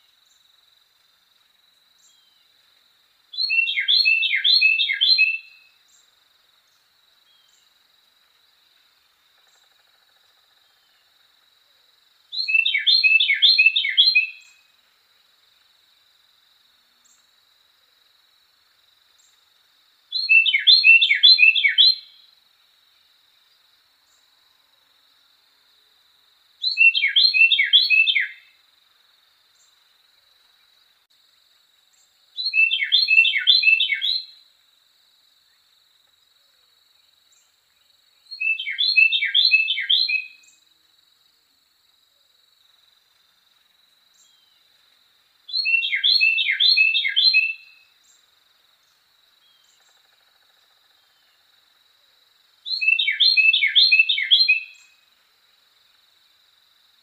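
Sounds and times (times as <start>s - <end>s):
wren singing: 3.3s - 6.0s, 12.3s - 14.6s, 20.1s - 22.2s, 26.6s - 28.5s, 32.0s - 34.3s, 38.3s - 40.6s, 45.5s - 48.2s, 52.7s - 55.0s.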